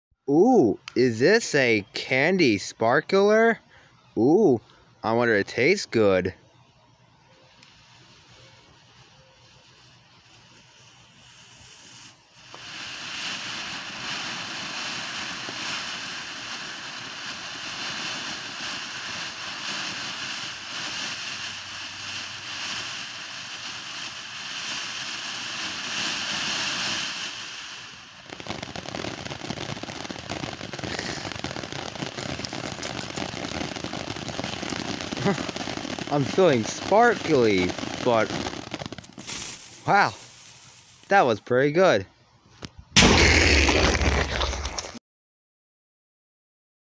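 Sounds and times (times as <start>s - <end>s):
firework fountain hissing: 7.4s - 41.7s, 43.0s - 45.0s
firework rapid crackling: 7.5s - 41.6s, 43.0s - 45.0s.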